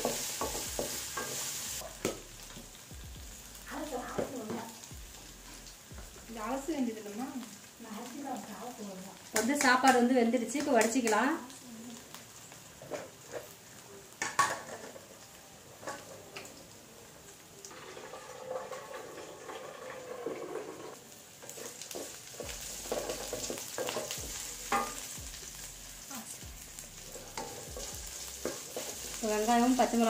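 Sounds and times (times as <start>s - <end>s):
vegetables sizzling in hot oil: 0.0s - 30.0s
wooden spatula scraping a pan: 17.7s - 25.2s.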